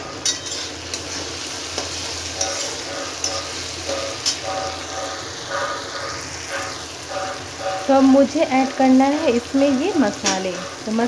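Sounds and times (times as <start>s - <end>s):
masala sizzling in oil: 0.0s - 11.0s
metal spatula scraping pan: 0.0s - 11.0s.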